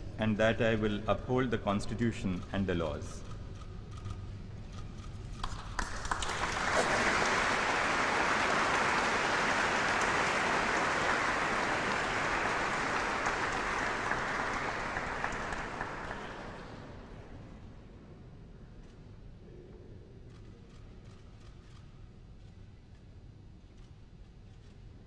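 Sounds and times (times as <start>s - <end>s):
audience applauding: 5.4s - 17.4s.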